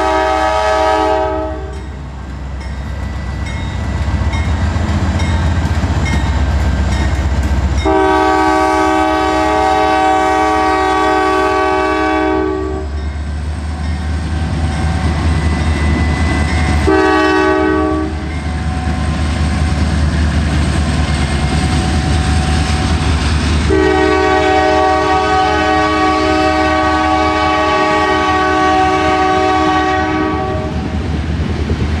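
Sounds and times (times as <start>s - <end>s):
locomotive air horn blasts: 0.0s - 1.9s, 7.8s - 13.0s, 16.7s - 18.3s, 23.7s - 30.8s
low rumble of train: 0.0s - 32.0s.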